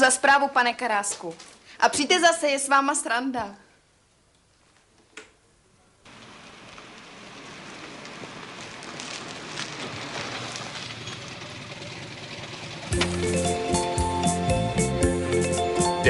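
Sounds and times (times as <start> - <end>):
faint crackles: 1.0 - 1.8, 6.1 - 13.2
car engine and tyre noise: 6.1 - 14.4.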